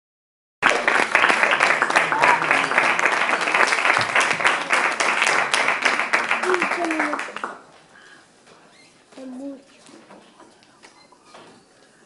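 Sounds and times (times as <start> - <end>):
audience applauding: 0.6 - 7.7.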